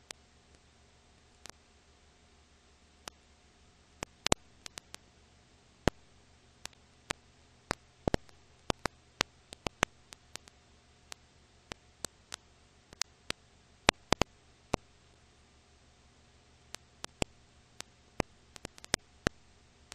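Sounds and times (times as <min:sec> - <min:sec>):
film crackle clicks and pops: 0:00.0 - 0:01.6, 0:03.0 - 0:03.2, 0:04.0 - 0:05.1, 0:05.8 - 0:15.0, 0:16.6 - 0:19.9
faint steady hiss: 0:00.0 - 0:19.9
low hum: 0:00.0 - 0:19.9.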